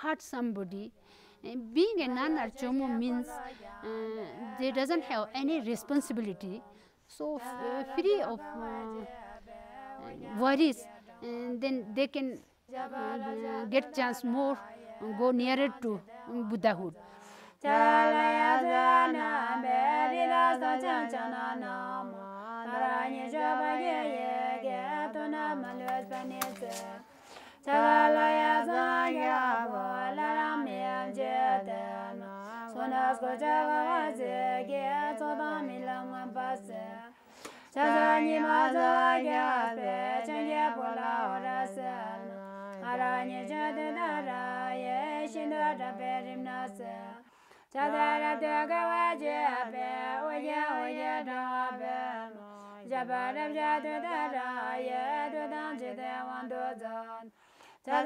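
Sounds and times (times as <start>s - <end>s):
woman chanting unaccompanied: 0.0s - 57.3s.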